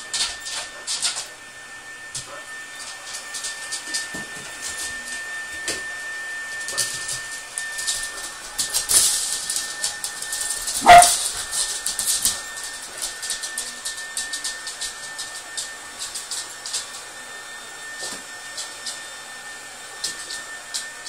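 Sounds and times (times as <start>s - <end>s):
dog claws on wooden floor: 0.1s - 1.3s, 6.6s - 17.0s
dog barking: 10.8s - 11.2s.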